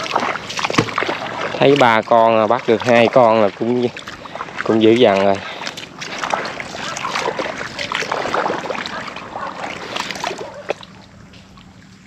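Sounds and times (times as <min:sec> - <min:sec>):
footsteps splashing in shallow water: 0:00.0 - 0:12.0.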